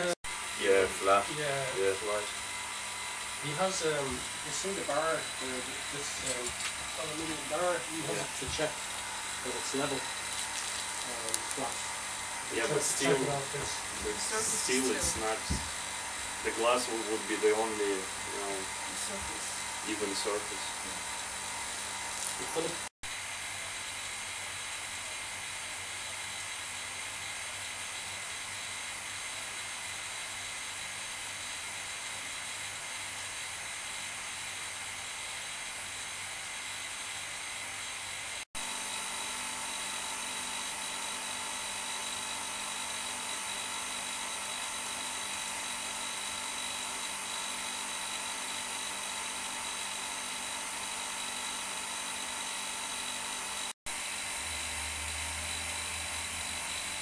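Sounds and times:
vacuum pump whining: 0.0 - 22.9, 38.6 - 57.0.

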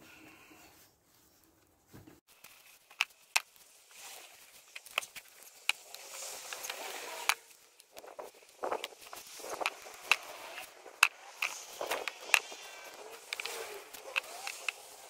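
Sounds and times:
soil rustling and crumbling: 2.2 - 15.0
sharp clicks: 4.7 - 15.0.

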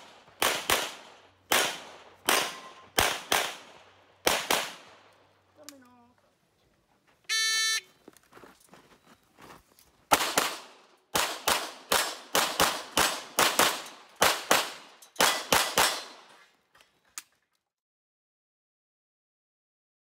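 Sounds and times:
pistol shots: 0.0 - 5.2, 10.1 - 16.3.

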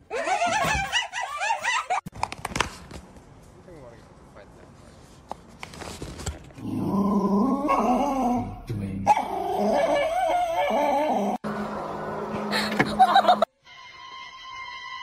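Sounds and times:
small dog whining and howling: 7.4 - 11.4.

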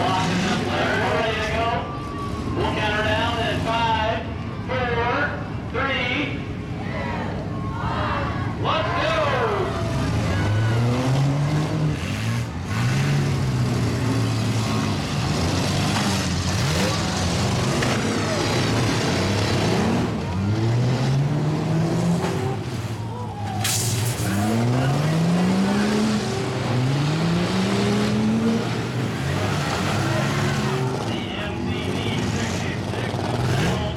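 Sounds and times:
car engines revving: 0.0 - 33.9
cars colliding: 9.8 - 31.3.

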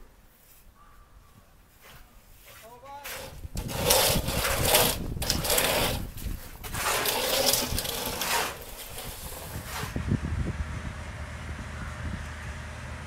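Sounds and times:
spray gun blowing mortar: 3.1 - 10.0.

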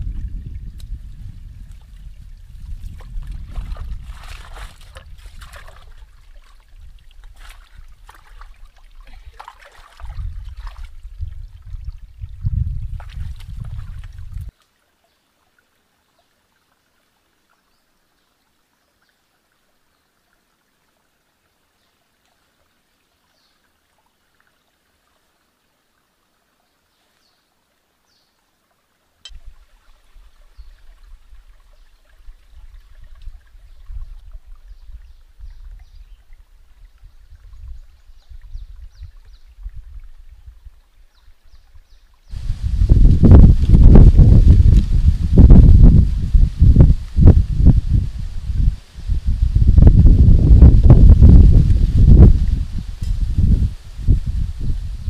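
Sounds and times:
wind buffeting microphone: 0.0 - 8.3, 10.0 - 14.5, 32.2 - 40.8, 41.8 - 55.0.

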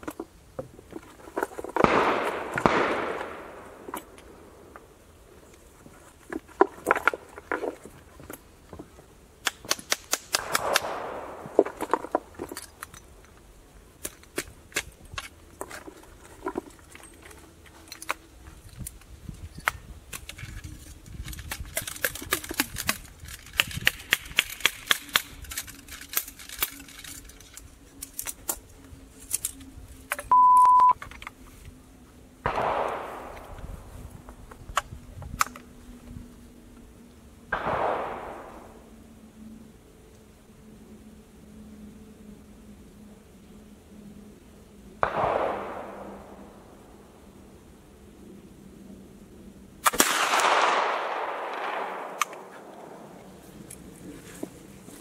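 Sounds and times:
short steady beep: 30.3 - 31.0.

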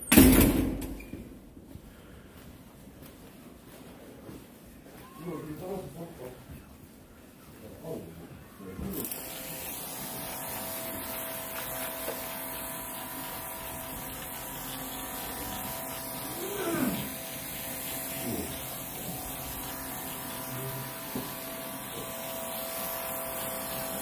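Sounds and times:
high hiss of spray: 9.0 - 24.0
sprayer pump motor humming: 9.0 - 24.0.

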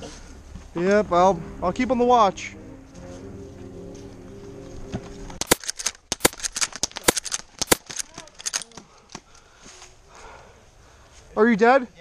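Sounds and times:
airsoft guns firing: 5.4 - 8.6.

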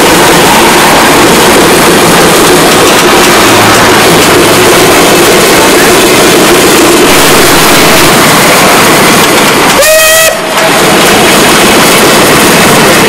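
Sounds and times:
steam locomotive whistle: 0.0 - 1.6, 7.0 - 8.7, 9.7 - 11.0
loud steady rushing noise: 0.0 - 13.0.

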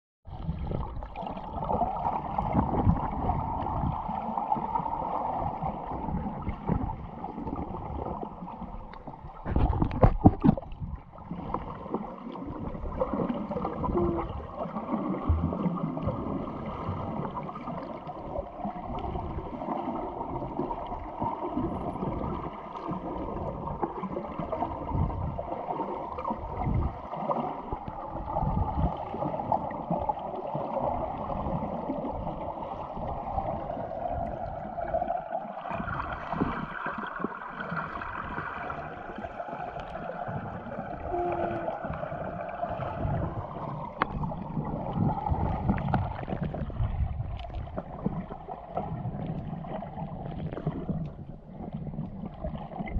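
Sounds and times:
underwater rush of water: 0.3 - 52.9
knocks underwater: 6.1 - 8.2, 8.9 - 17.2, 40.1 - 49.5.

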